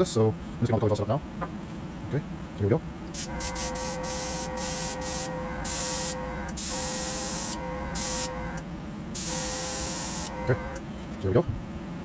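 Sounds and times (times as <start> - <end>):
air compressor humming: 3.1 - 10.9
airbrush spraying hiss: 3.2 - 8.3.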